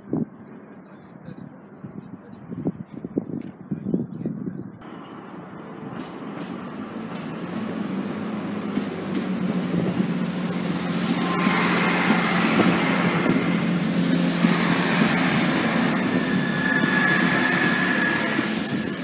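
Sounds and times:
train wheel and rail noise: 0.0 - 19.0
train engine drone: 4.8 - 19.0.

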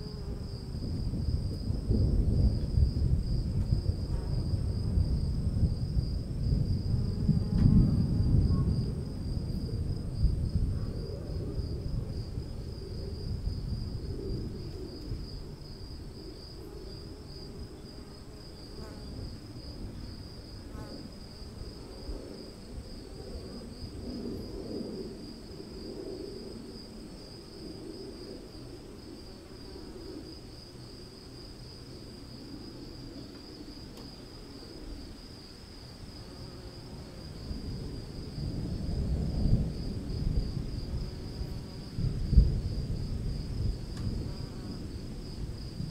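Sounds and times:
insects chirring: 0.0 - 45.9
distant thunder rumble: 0.7 - 16.4, 37.4 - 45.9.

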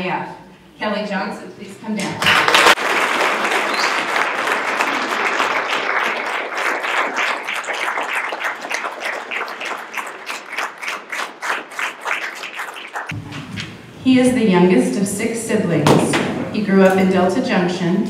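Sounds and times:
audience applause: 2.2 - 13.1.

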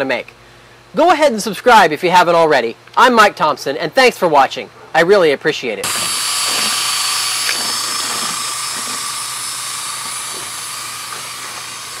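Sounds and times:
drill motor whine: 5.8 - 12.0.

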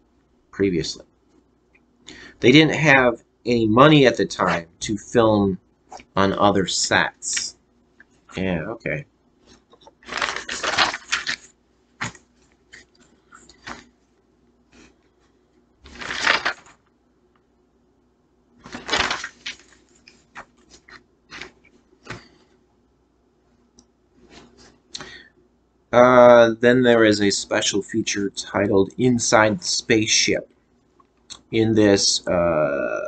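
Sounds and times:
rustling: 9.4 - 16.9, 18.6 - 22.6.

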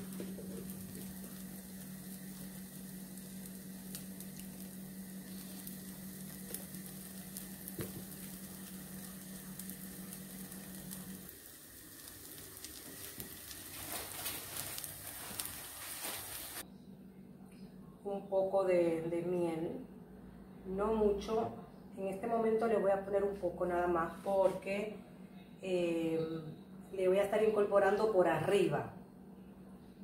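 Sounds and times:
pancake sizzling in pan: 0.0 - 16.6
low steady hum: 0.0 - 30.0.

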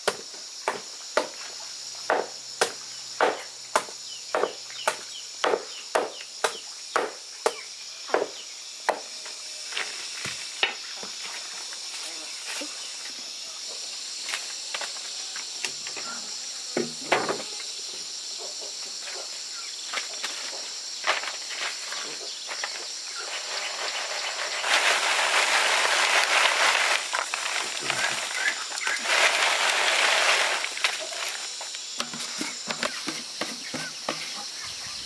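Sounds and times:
steady high hiss: 0.0 - 35.0
sizzle-like hissing: 22.9 - 32.8.

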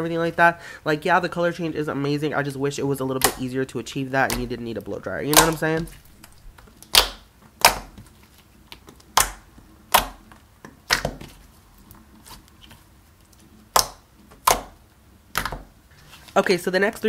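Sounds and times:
slime popping: 4.2 - 11.4, 13.7 - 15.7.

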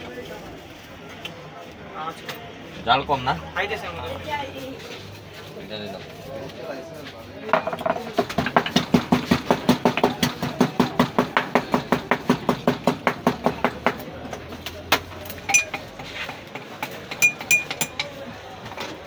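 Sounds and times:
wooden pestle pounding: 7.6 - 14.1, 14.9 - 18.1
metal spoon clinking glass: 15.5 - 15.9, 17.1 - 18.1.

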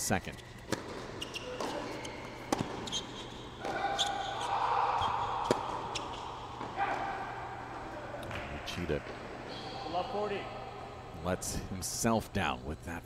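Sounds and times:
background noise: 0.0 - 13.0
tennis ball bouncing: 0.6 - 4.2, 5.0 - 9.4.

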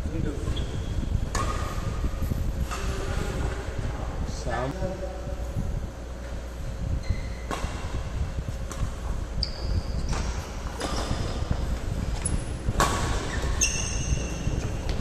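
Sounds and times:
steady low hum: 0.0 - 15.0
short high squeaks: 13.2 - 14.8.

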